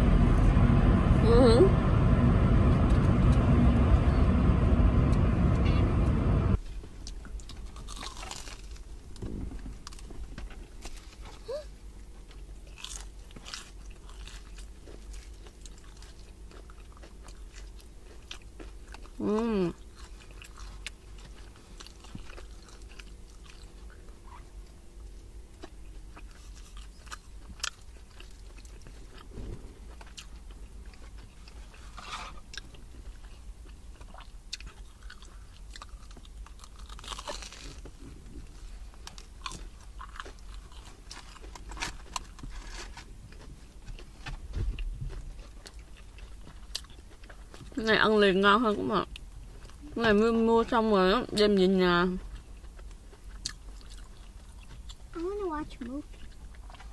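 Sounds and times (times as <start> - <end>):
brief wavering hum: 0.0 - 6.6
crust crunching: 6.6 - 11.5, 12.1 - 47.8
chewing and biting: 6.7 - 47.9, 48.6 - 56.9.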